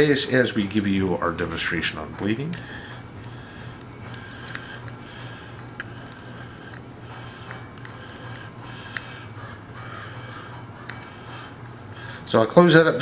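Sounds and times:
low hum: 0.0s - 12.3s
screwdriver clicks: 2.1s - 10.0s, 10.8s - 11.8s.

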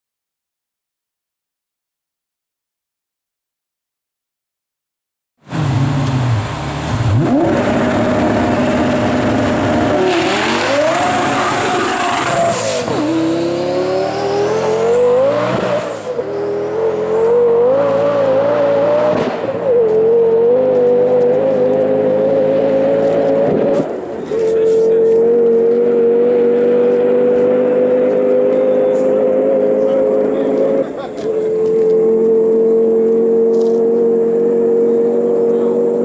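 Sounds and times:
car engine accelerating hard: 5.4s - 36.0s.

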